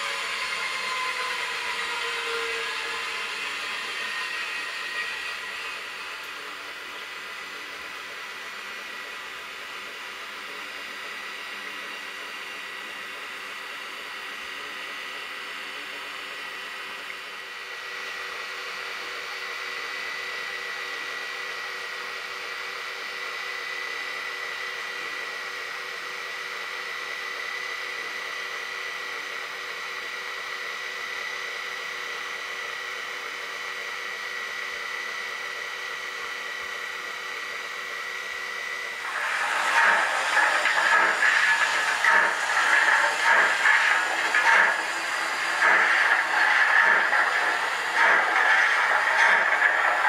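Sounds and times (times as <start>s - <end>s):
electric locomotive hum and whine: 0.0s - 50.0s
steam locomotive hissing: 39.0s - 50.0s.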